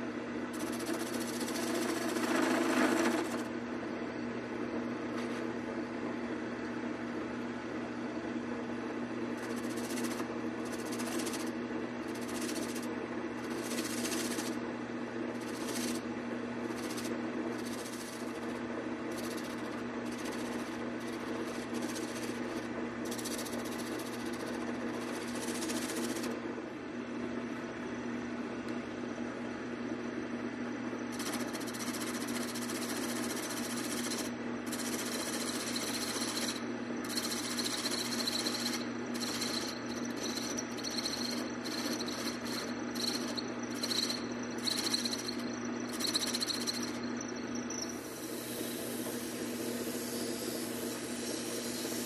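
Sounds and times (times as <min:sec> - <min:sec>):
lathe motor hum: 0:00.0 - 0:03.6, 0:09.2 - 0:26.5, 0:31.1 - 0:52.0
tool shaving spinning wood: 0:00.5 - 0:03.5, 0:09.4 - 0:14.6, 0:15.3 - 0:26.4, 0:31.1 - 0:52.0
thin high whine: 0:30.9 - 0:52.0.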